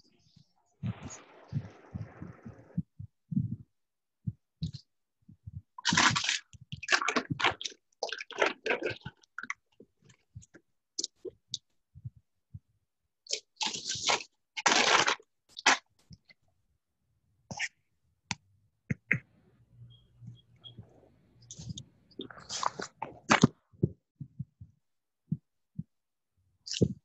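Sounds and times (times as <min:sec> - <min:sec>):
crunching and rustling: 0:05.8 - 0:09.6, 0:13.3 - 0:15.8, 0:21.5 - 0:23.6.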